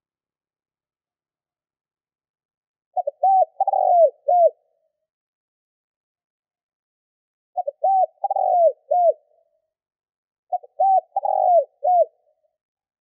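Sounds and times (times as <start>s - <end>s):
dove cooing: 3.0s - 4.6s, 7.6s - 9.3s, 10.5s - 12.3s.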